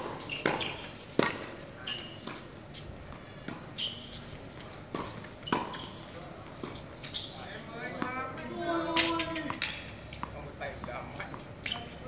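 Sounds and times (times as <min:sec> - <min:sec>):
tennis ball hit by racket: 0:00.0 - 0:01.6, 0:04.9 - 0:06.0
tennis ball bouncing on court: 0:00.0 - 0:07.2, 0:07.9 - 0:12.0.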